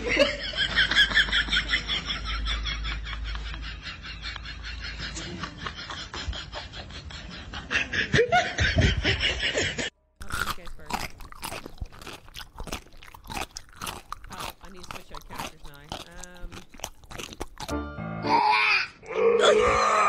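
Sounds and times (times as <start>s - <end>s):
cat chewing with crunchy clicks: 10.2s - 17.7s.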